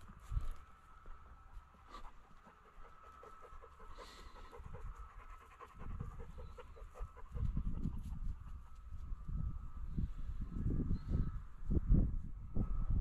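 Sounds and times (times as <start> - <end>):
dog panting fast: 1.9 - 8.8.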